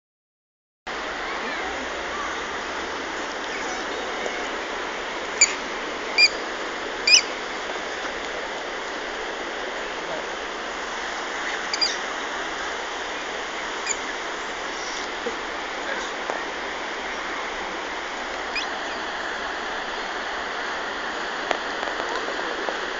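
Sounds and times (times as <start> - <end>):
running water rushing: 0.9 - 22.9
short high squeaks: 11.4 - 12.0, 18.5 - 19.0.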